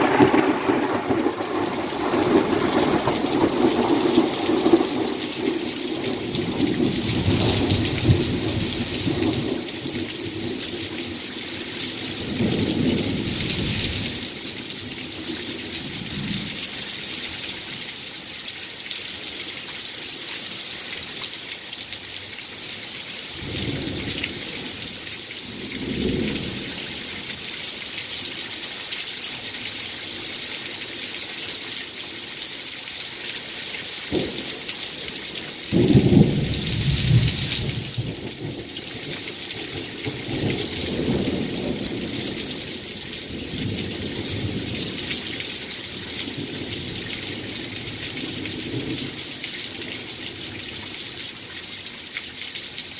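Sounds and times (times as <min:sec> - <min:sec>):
thunder rumbling: 0:00.0 - 0:10.0, 0:35.7 - 0:38.7
heavy rain pouring: 0:00.0 - 0:52.9.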